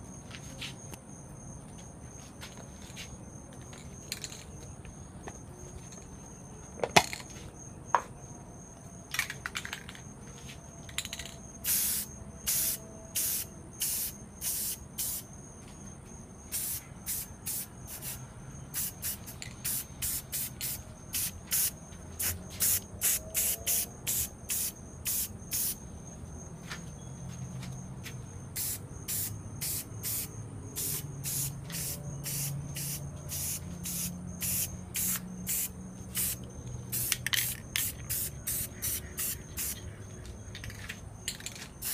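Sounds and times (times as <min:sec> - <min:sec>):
spray paint can hissing: 0:11.6 - 0:15.2, 0:16.5 - 0:25.8, 0:28.6 - 0:39.8.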